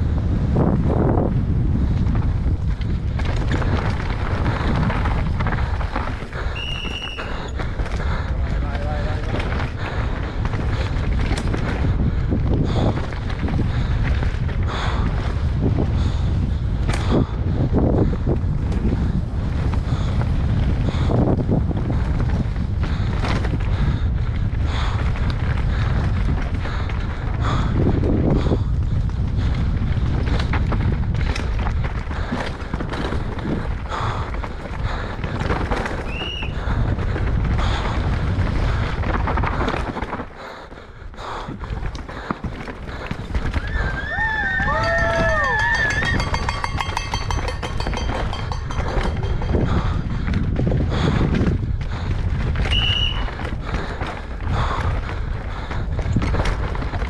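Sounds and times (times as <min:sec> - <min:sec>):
wind blasting microphone: 0:00.0 - 0:57.0
bike rattling over rocks: 0:00.1 - 0:57.0
tyres rumbling over dirt: 0:00.1 - 0:57.0
bike clattering over ground: 0:02.0 - 0:08.1, 0:08.8 - 0:12.1, 0:41.9 - 0:55.0.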